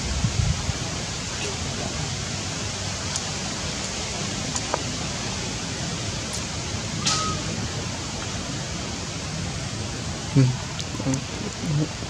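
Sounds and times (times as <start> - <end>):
outdoor background hiss: 0.0 - 12.0
high-pitched squeak: 7.0 - 7.6.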